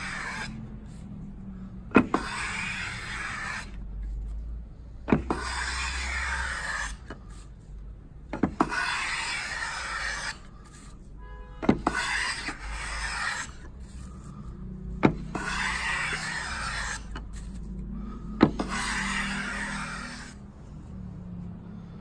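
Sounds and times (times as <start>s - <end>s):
hand plane shaving wood: 0.0s - 0.6s, 1.9s - 3.8s, 5.1s - 7.4s, 8.4s - 10.9s, 11.7s - 14.0s, 15.0s - 17.7s, 18.4s - 20.4s.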